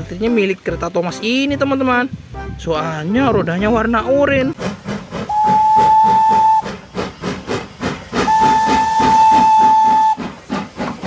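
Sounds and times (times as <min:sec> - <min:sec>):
steam locomotive chuffing: 0:04.5 - 0:11.0
steam locomotive whistle: 0:05.2 - 0:06.8, 0:08.2 - 0:10.3.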